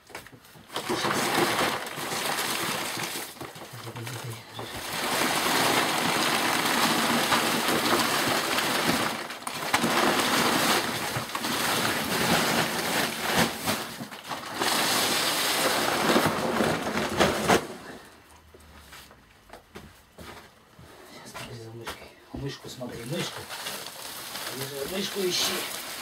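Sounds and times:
sacks scraping across a table: 4.0s - 18.1s, 22.8s - 26.0s.

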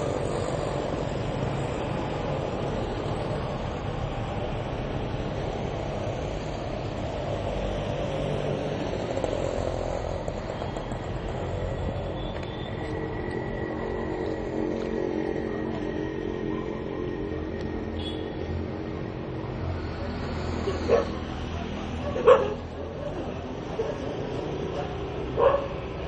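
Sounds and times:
street traffic noise: 0.0s - 26.0s
vehicle engine running: 0.0s - 26.0s.

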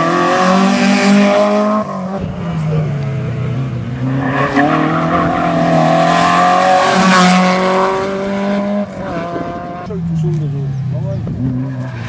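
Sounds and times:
rally car engine at high revs: 0.0s - 10.4s.

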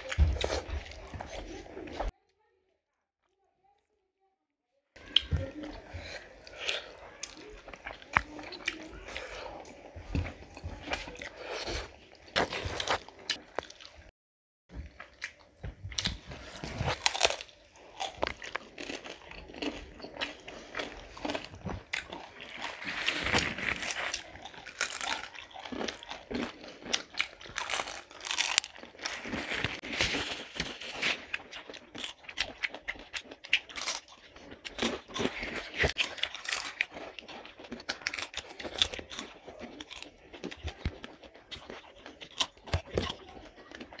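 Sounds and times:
crunching and chewing food: 0.0s - 2.2s, 5.0s - 14.1s, 14.7s - 44.0s.

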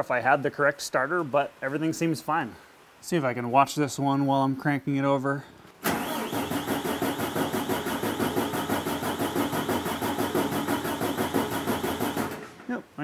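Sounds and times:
starter motor cranking diesel engine: 5.8s - 12.6s.

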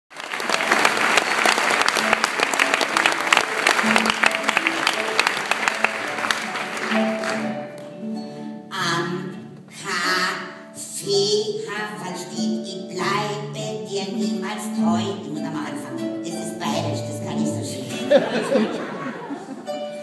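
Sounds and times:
audience applauding: 0.1s - 8.0s
harp playing sustained notes: 1.9s - 9.5s, 14.8s - 18.3s.

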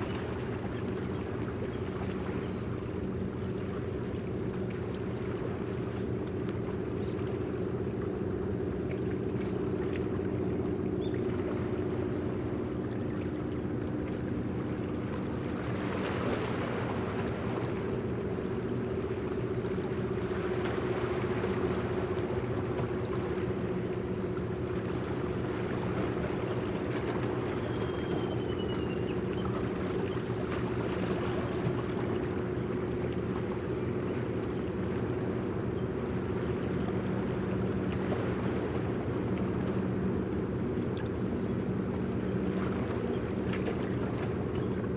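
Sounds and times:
ship turbine drone: 0.0s - 44.9s.

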